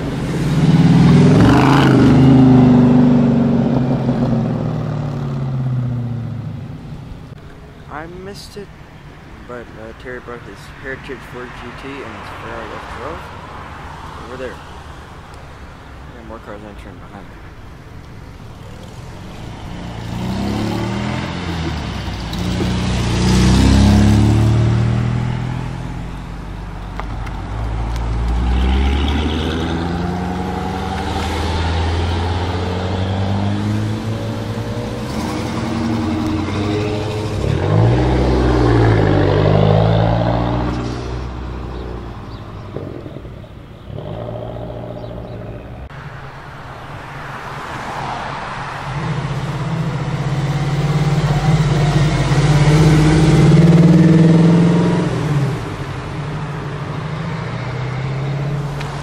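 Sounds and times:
cars driving past accelerating: 0.0 - 6.8, 18.4 - 59.0.

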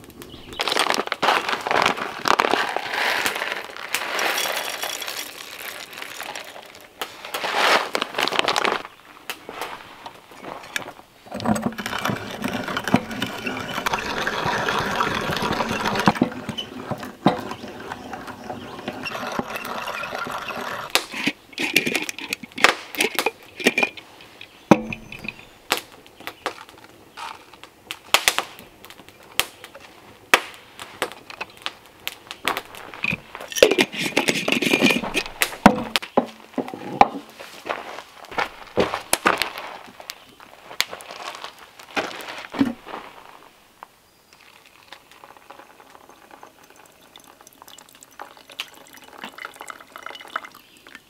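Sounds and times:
hand coffee grinder grinding beans: 10.7 - 24.0, 32.5 - 35.5
clicks and knocks of glass jar: 24.7 - 25.5, 45.2 - 51.0.

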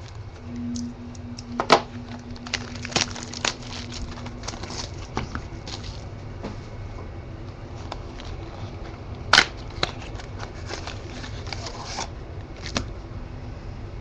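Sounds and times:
card and foil packaging rustling: 1.6 - 6.1, 7.7 - 12.9.

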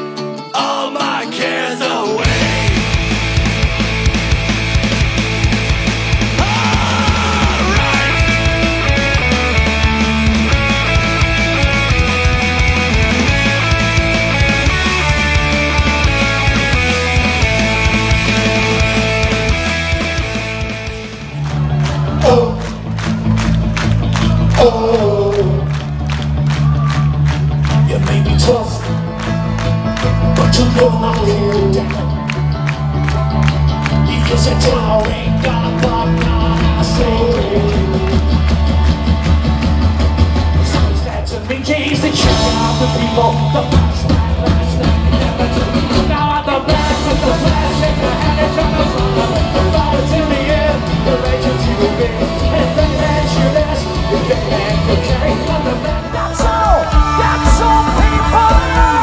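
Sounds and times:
live rock band playing: 0.0 - 59.0
open-air crowd: 0.0 - 59.0
person singing: 0.4 - 2.9, 6.3 - 9.3, 21.8 - 22.8, 24.2 - 25.8, 27.7 - 29.0, 30.3 - 32.4, 33.9 - 38.5, 40.6 - 59.0.

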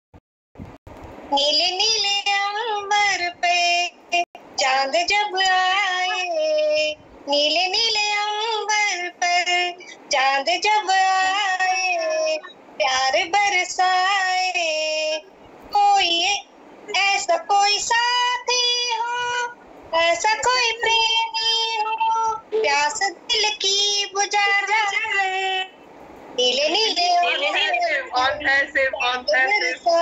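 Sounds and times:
woman singing unaccompanied: 1.3 - 25.8, 26.4 - 30.0.

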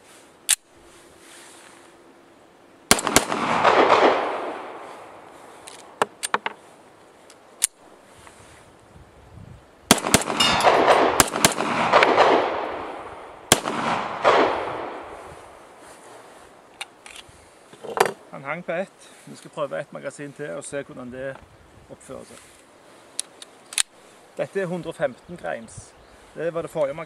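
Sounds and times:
gun clicks: 0.4 - 0.7, 5.6 - 6.5, 7.3 - 7.8, 16.7 - 17.3, 23.1 - 24.0
pistol shots with echo: 2.9 - 4.8, 9.9 - 15.2.

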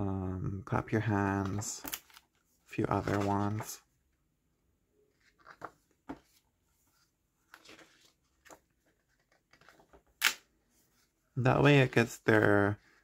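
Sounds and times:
book pages rustling: 1.4 - 3.8, 5.1 - 13.0.

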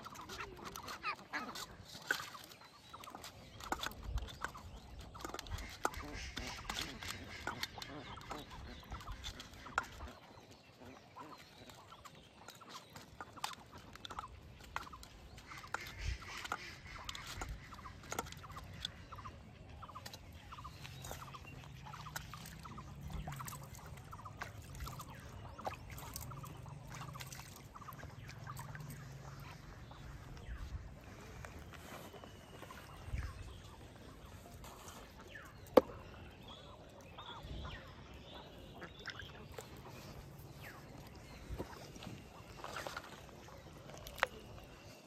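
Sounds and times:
chickens clucking: 0.0 - 44.6
hands splashing in a metal bowl: 20.0 - 29.0.

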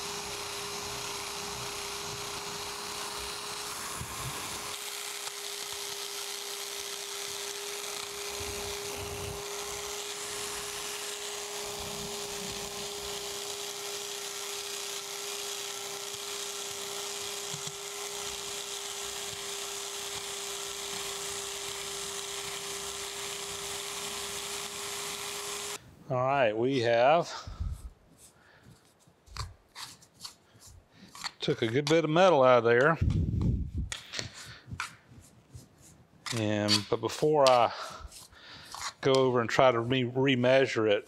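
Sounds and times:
power scraper cutting metal: 0.0 - 25.8, 36.3 - 39.8.

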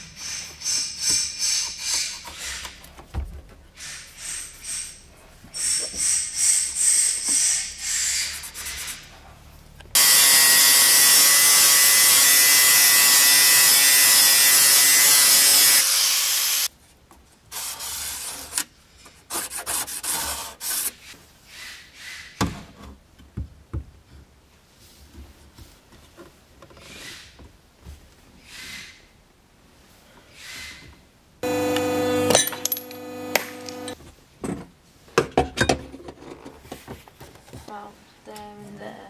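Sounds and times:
angle grinder grinding metal: 10.0 - 16.7, 31.4 - 34.0.

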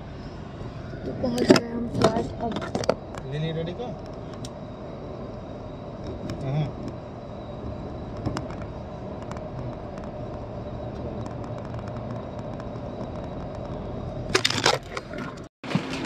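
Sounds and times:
vehicle road and engine noise: 0.0 - 16.0.

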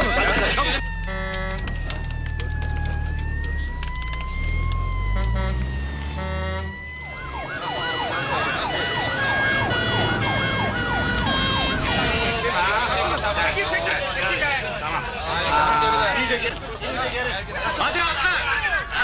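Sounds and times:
yelping siren: 0.0 - 12.8
wailing siren: 0.0 - 13.3
heavy engine rumble: 0.0 - 17.3
horn blasts: 0.7 - 2.2, 5.0 - 12.8.

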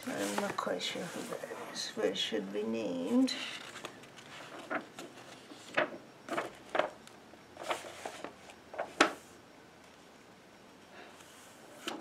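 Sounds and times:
magazine pages rustling: 0.0 - 1.9, 3.0 - 9.2.

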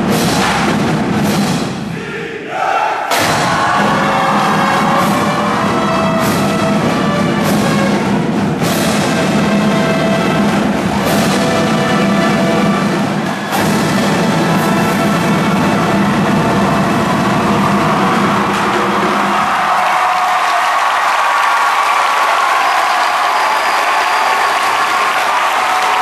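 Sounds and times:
snare and bass drums: 0.0 - 2.0, 3.1 - 20.0
brass instruments playing: 2.0 - 19.7.

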